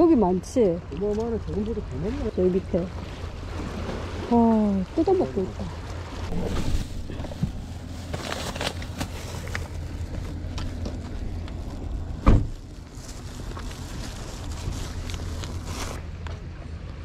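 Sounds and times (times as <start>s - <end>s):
low steady rumble: 0.0s - 17.0s
loud thump: 12.2s - 12.6s.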